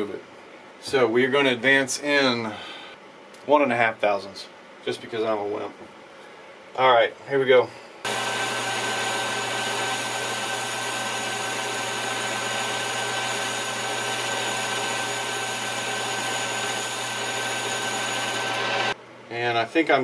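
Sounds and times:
high whine of cutting tool: 8.1 - 19.0
lathe machine humming: 8.1 - 19.0.

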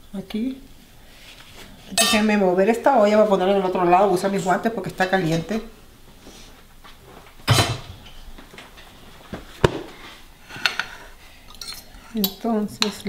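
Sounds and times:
metal pot clunking down: 7.5 - 8.0.

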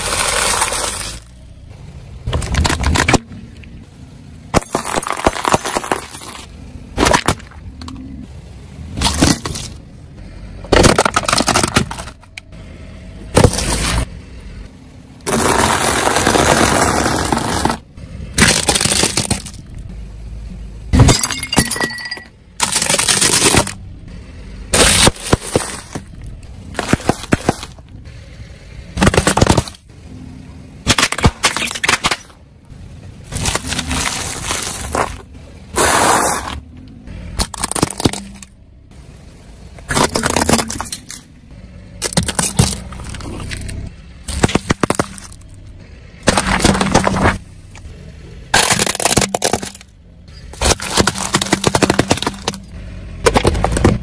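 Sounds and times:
tyre crushing brittle objects: 0.0 - 1.4, 2.3 - 3.3, 4.5 - 7.7, 10.7 - 12.3, 15.3 - 17.8, 18.4 - 19.7, 22.6 - 23.8, 24.7 - 27.8, 29.0 - 29.9, 33.3 - 36.6, 37.4 - 38.5, 39.9 - 41.2, 42.0 - 45.6, 46.2 - 47.4, 48.5 - 54.0
cans bursting and spraying: 35.7 - 36.6.

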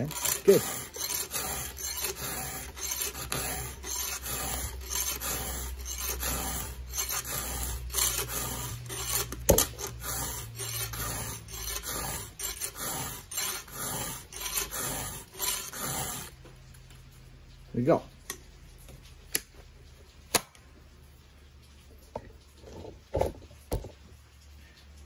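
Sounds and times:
file rasping on saw chain: 0.0 - 16.4.

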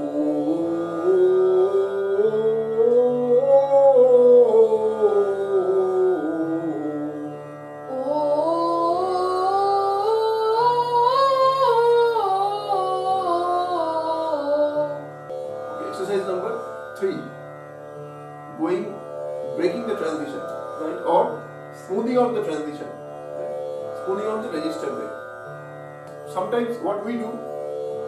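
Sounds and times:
man singing vocal scales: 0.0 - 7.3
instrumental drone: 7.9 - 17.3, 18.0 - 28.0.

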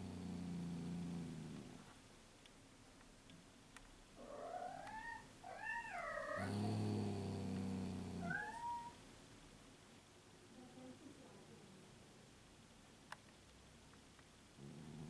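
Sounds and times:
cat purring: 0.0 - 2.0, 4.2 - 9.0, 14.5 - 15.0
cat meowing: 4.2 - 6.5, 8.2 - 9.0.

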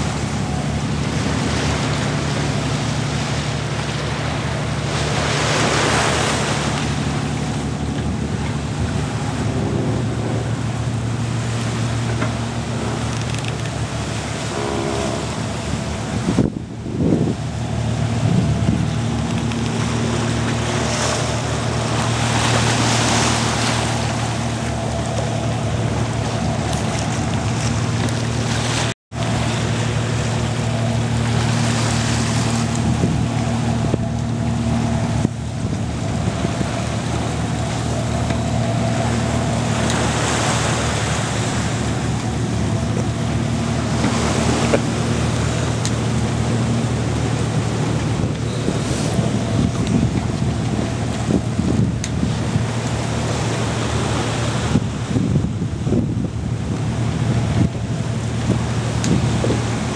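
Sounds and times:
boat engine drone: 0.0 - 59.9
water rushing past hull: 0.0 - 59.9
wind on microphone: 0.0 - 59.9.

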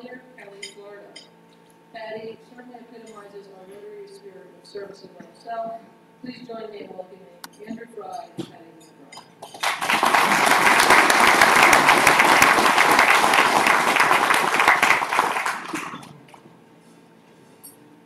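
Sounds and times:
audience applauding: 9.5 - 16.2.

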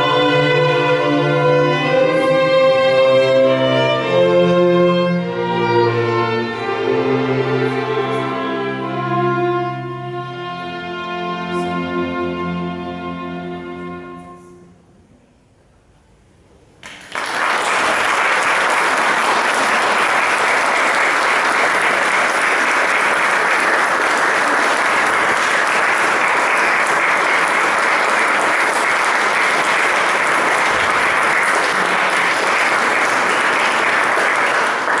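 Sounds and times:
audience applauding: 16.8 - 35.0.

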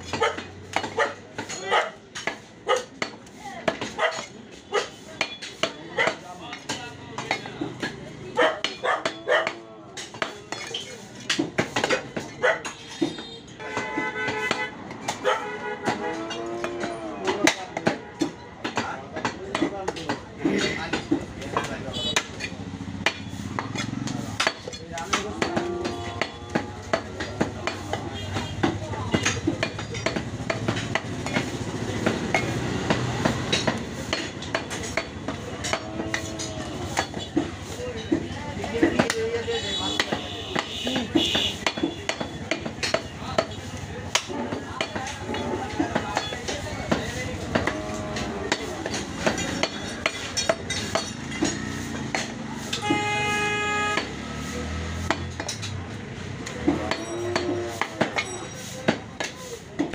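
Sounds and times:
background voices: 43.1 - 52.7.

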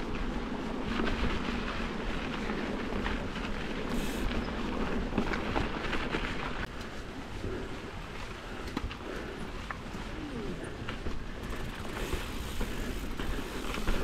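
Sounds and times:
bike rumble on trail: 0.0 - 14.0
bike knocks and rattles: 10.9 - 14.0.

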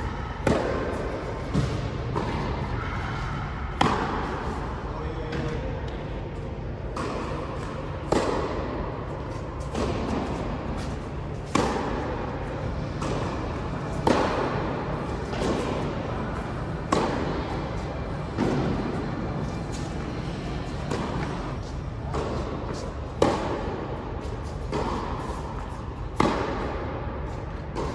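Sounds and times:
tennis ball bounces: 0.4 - 2.6, 3.7 - 4.5, 6.8 - 26.9, 27.6 - 27.9
tennis racket strikes: 6.9 - 12.3, 12.9 - 15.9, 16.8 - 17.5, 20.8 - 27.9.

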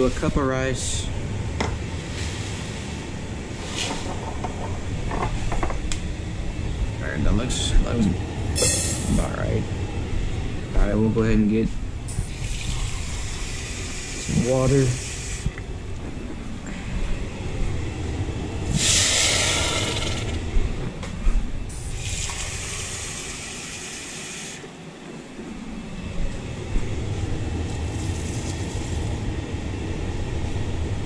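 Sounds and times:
steady low hum: 0.0 - 31.0
faucet running into a cup: 12.2 - 15.4, 22.0 - 24.5.

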